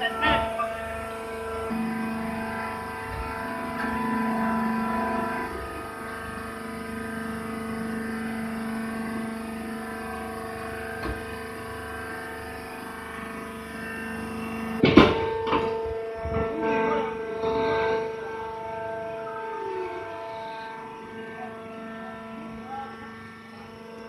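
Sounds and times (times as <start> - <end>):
hydraulic pump motor humming: 0.0 - 24.0.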